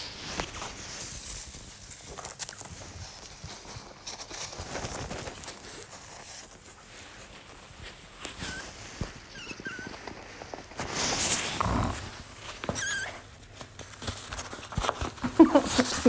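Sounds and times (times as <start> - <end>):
fabric rustling: 0.0 - 16.0
claws scrabbling: 0.2 - 16.0
otter squeaky chirps: 8.4 - 8.7, 9.3 - 10.0, 12.7 - 13.2.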